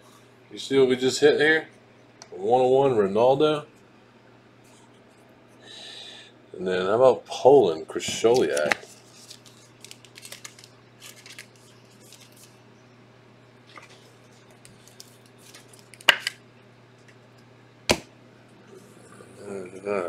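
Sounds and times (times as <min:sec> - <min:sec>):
cards rustling: 0:08.1 - 0:12.6, 0:13.7 - 0:16.4.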